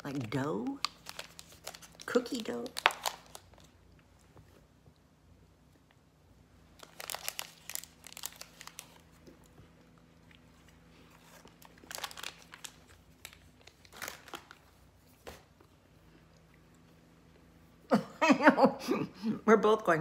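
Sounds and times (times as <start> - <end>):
plastic wrapper crinkling: 0.0 - 3.8, 6.7 - 9.5, 10.6 - 15.4.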